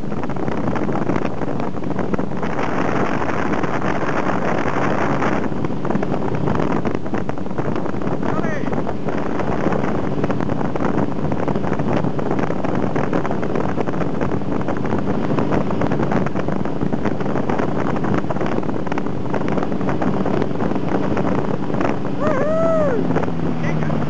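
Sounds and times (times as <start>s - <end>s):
boat engine running: 0.0s - 24.0s
wind buffeting microphone: 0.0s - 24.0s.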